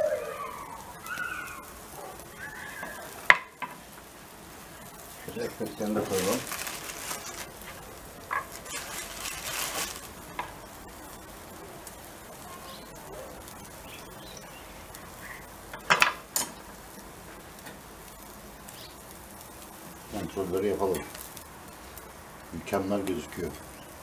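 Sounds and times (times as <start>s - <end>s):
meat sizzling on a grill: 0.0s - 24.0s.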